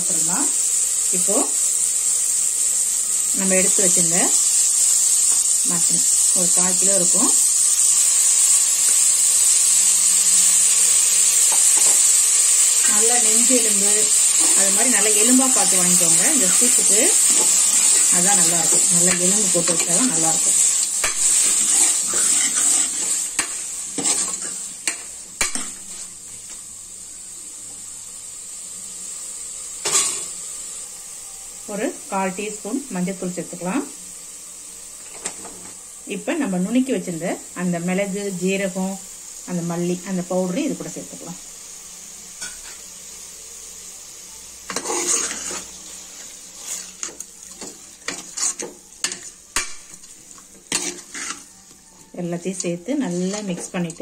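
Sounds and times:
oil sizzling: 0.0 - 54.0
ladle stirring in a pot: 14.2 - 26.1, 44.7 - 51.8, 52.5 - 54.0.

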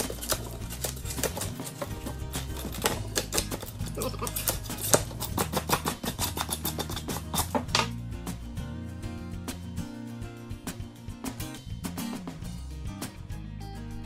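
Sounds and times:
putty knife chipping foam board: 0.0 - 7.9
background music: 0.0 - 14.0.

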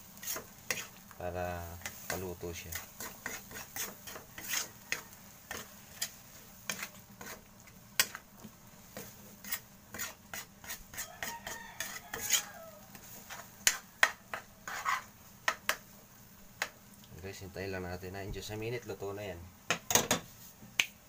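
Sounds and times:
faint sizzle: 0.0 - 21.0
metal ladle scraping wok: 1.8 - 8.2, 8.9 - 15.1.

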